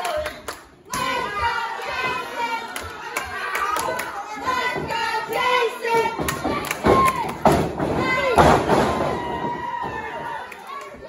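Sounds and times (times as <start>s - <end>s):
crowd clapping: 0.0s - 7.7s, 10.3s - 11.0s.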